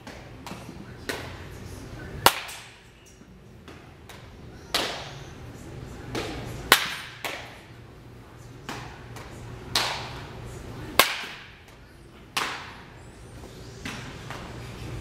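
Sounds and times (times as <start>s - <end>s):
baseball bat hitting ball: 2.2s - 2.8s, 3.7s - 5.2s, 6.1s - 7.6s, 8.6s - 10.3s, 10.9s - 11.7s, 12.3s - 12.9s.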